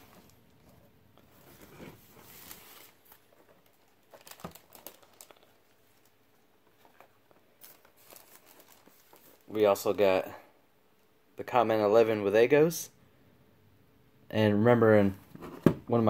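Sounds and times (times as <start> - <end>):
plastic bag crinkling: 2.2 - 9.8.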